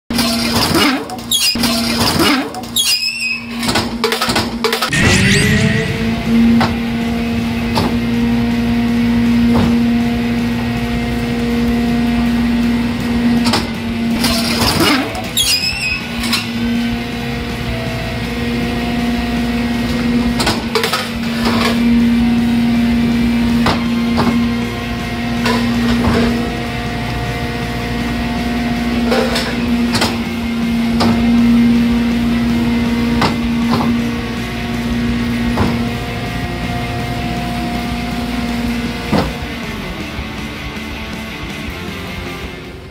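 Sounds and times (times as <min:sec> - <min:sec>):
sharp metallic clanks: 0:04.9 - 0:07.1
hydraulic compactor whine: 0:04.9 - 0:40.0.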